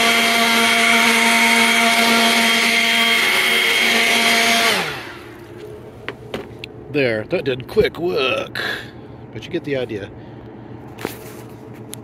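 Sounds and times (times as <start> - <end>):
motor spinning down: 0.0 - 5.4
leaf blower whine: 0.0 - 6.6.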